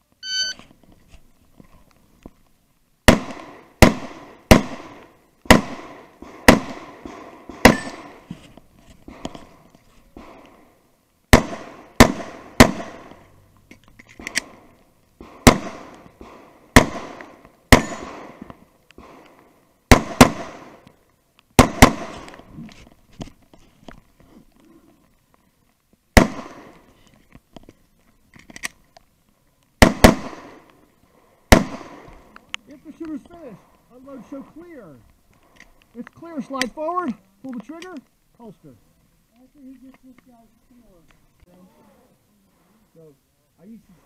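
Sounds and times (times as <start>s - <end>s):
pistol shots with echo: 3.1s - 8.2s, 11.3s - 13.2s, 14.3s - 18.4s, 19.9s - 20.8s, 21.6s - 22.3s, 26.2s - 26.7s, 29.8s - 30.6s, 31.5s - 32.1s.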